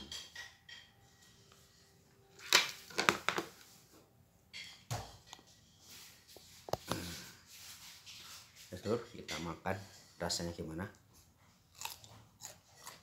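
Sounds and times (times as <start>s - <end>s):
phone being handled: 2.4s - 3.6s.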